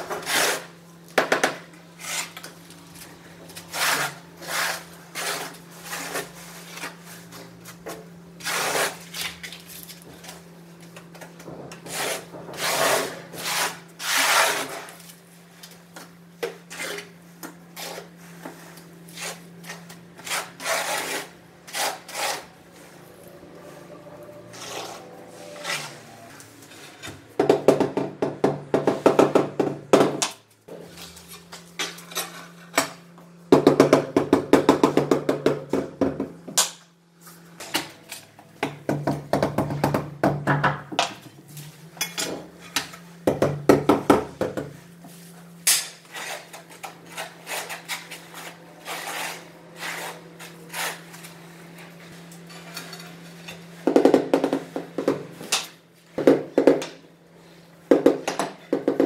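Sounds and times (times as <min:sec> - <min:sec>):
trowel scraping adhesive on concrete: 0:03.7 - 0:06.8, 0:08.4 - 0:09.1, 0:11.8 - 0:15.0, 0:19.1 - 0:22.5, 0:46.0 - 0:51.1.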